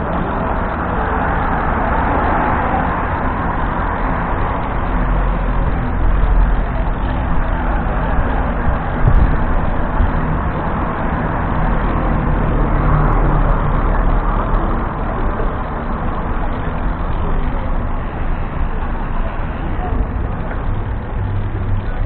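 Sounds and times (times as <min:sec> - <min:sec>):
car and bus traffic: 0:00.0 - 0:22.0
road noise: 0:00.0 - 0:22.0
wind rush: 0:01.2 - 0:13.1.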